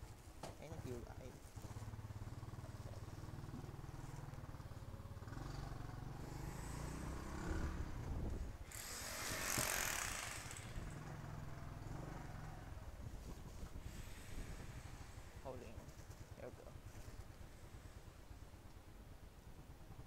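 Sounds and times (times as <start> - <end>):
motorbike engine running: 0.9 - 20.0
loud rushing hiss: 8.6 - 10.8.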